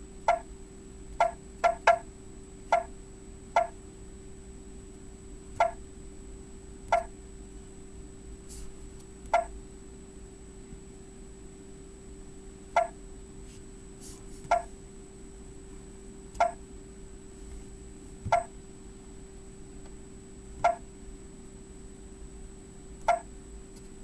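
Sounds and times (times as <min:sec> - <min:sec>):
faint steady hum: 0:00.0 - 0:24.0
touchscreen beeps: 0:12.8 - 0:13.0, 0:16.4 - 0:16.6, 0:18.3 - 0:18.5, 0:20.6 - 0:20.8, 0:23.1 - 0:23.3.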